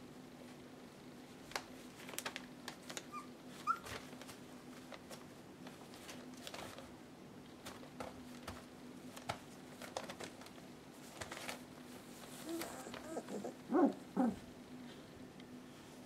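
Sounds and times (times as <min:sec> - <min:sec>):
faint steady hum: 0:00.0 - 0:16.0
puppy paws on newspaper: 0:01.3 - 0:15.0
puppy squeaks: 0:03.1 - 0:03.9.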